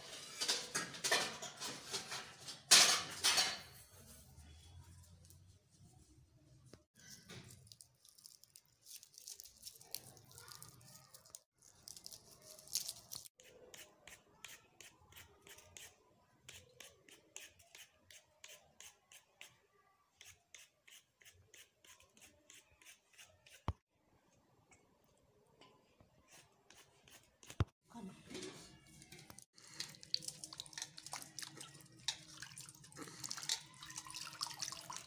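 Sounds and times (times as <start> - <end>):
carrots being scraped by hand: 20.2 - 23.6.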